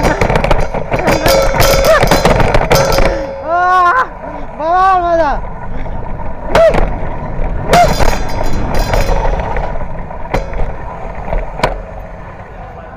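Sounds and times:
sharp knocks: 0.0 - 3.5, 7.7 - 11.9
bicycle rattling: 0.0 - 12.9
bicycle road rumble: 0.0 - 12.9.

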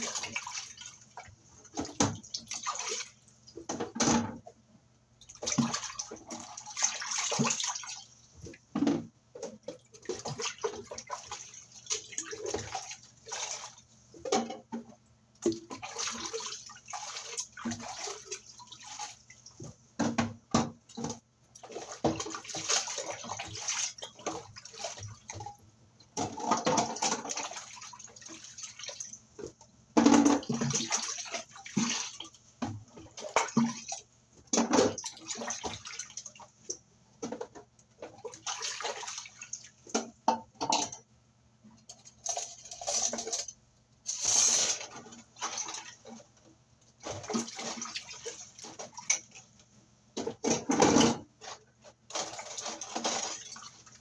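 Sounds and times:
water splashing in basin: 0.0 - 3.2, 5.2 - 14.6, 15.4 - 25.5, 26.2 - 29.2, 30.0 - 36.5, 38.1 - 40.4, 44.2 - 46.2, 47.0 - 49.4, 52.1 - 54.0.

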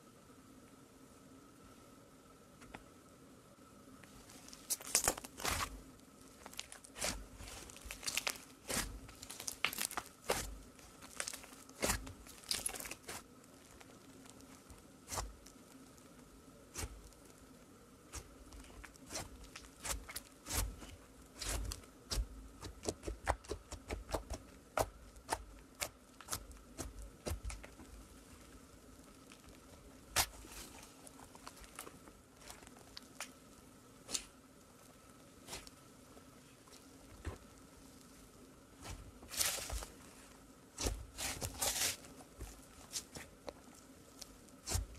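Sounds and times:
faint steady hum: 0.0 - 44.9
slime popping and crackling: 4.5 - 5.8, 6.4 - 15.6, 18.1 - 27.8, 29.2 - 33.4, 40.8 - 42.0, 44.6 - 44.9.

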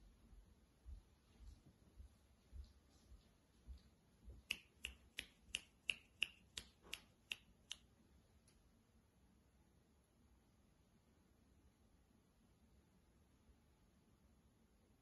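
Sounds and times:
finger snaps: 4.4 - 7.9.

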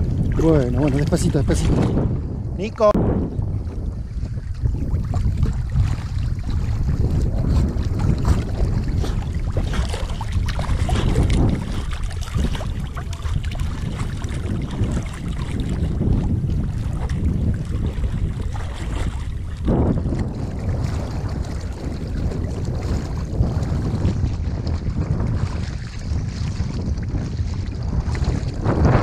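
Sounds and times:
river water sloshing and splashing: 0.0 - 2.2, 3.2 - 29.0
wind rumbling on microphone: 0.0 - 29.0
dogs paddling: 6.5 - 14.4.

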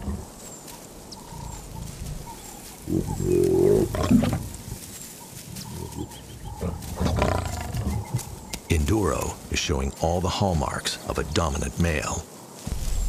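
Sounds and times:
lion snarling: 0.0 - 0.4, 1.7 - 4.6, 5.6 - 8.4.

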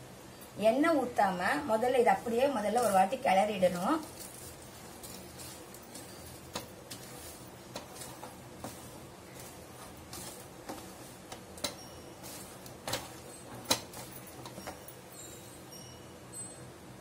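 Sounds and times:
soft scraping rustle: 2.8 - 15.7
wooden spatula knocking steel bowl: 5.4 - 14.8.

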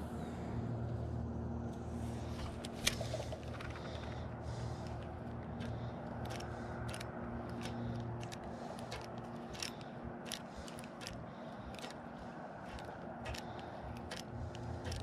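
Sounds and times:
low steady hum: 0.0 - 15.0
fishing reel clicking: 5.6 - 12.0, 12.7 - 15.0.

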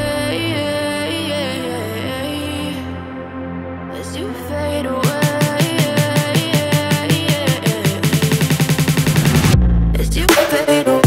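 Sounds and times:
electronic dance music: 5.0 - 9.6, 10.2 - 11.0
rising sweep: 8.6 - 10.0.

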